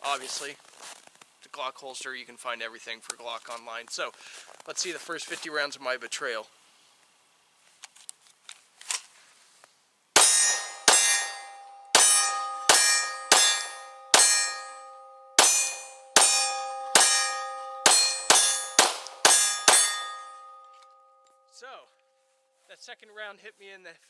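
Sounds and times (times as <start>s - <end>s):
metallic ringing: 10.2s - 22.7s
pistol shots: 15.4s - 20.1s.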